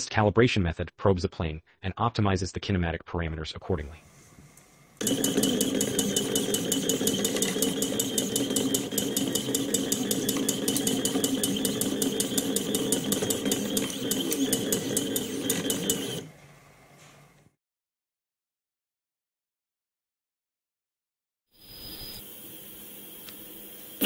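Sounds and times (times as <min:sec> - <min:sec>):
stepper motor hum and ticking: 0:05.0 - 0:16.3.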